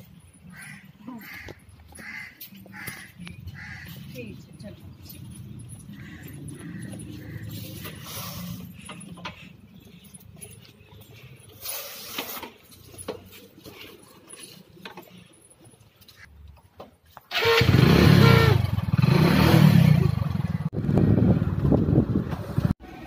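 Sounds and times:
road and wind noise: 0.0s - 23.0s
motorcycle running on road: 17.4s - 23.0s.

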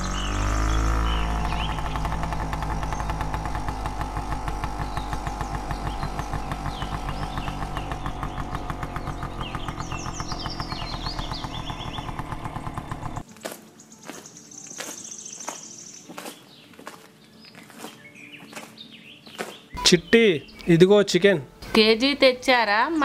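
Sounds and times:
scooter engine running: 0.0s - 13.3s
high chirps: 19.7s - 20.8s.

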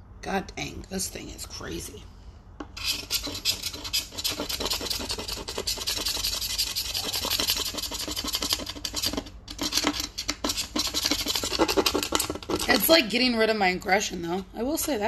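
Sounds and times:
scraping dried paint: 2.7s - 13.0s.

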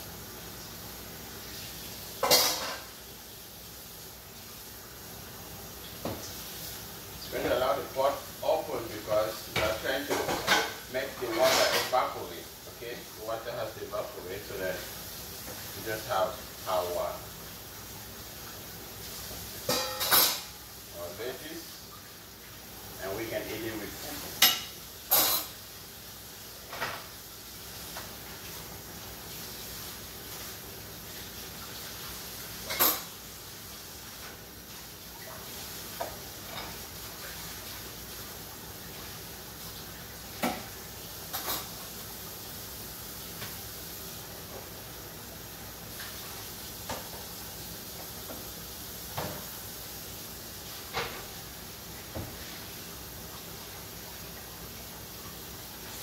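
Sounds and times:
faint steady hiss: 0.0s - 56.0s
kitchen utensils knocking: 19.7s - 20.4s.

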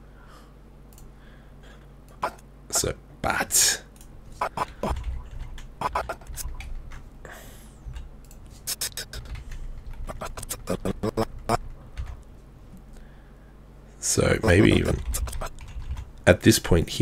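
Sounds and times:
faint steady hum: 0.0s - 17.0s
keyboard and mouse clicks: 4.0s - 7.0s, 14.5s - 16.2s.

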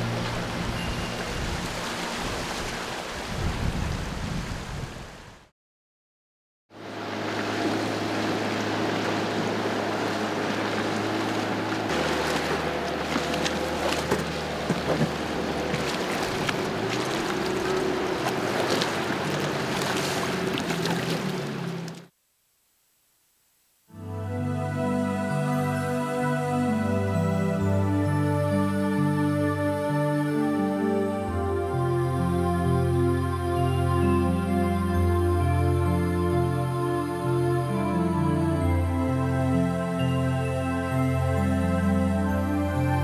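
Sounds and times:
wind noise: 0.0s - 5.4s
water noise: 0.0s - 5.5s, 6.7s - 22.1s
small boat motor running: 6.8s - 22.1s
background music: 23.9s - 43.0s.

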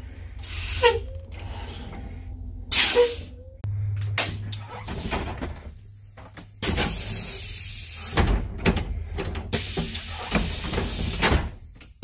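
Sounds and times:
idling bus hum: 0.0s - 12.0s
compressed air hisses: 0.4s - 1.0s, 6.8s - 8.2s, 9.5s - 11.2s.

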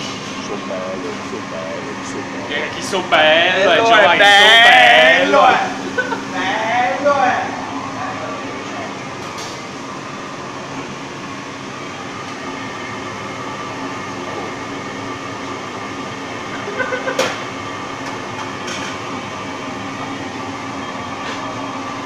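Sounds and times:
extractor fan drone: 0.0s - 22.0s.

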